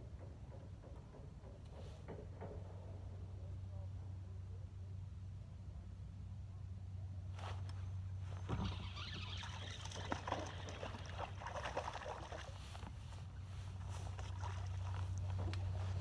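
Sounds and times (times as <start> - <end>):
steady low hum: 0.0 - 16.0
water sloshing around boat: 7.4 - 16.0.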